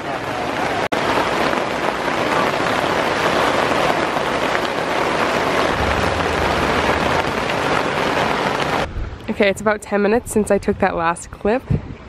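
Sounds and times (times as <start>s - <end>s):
heavy rain drumming on a tent: 0.0s - 9.5s
low thunder rumble: 5.5s - 9.3s.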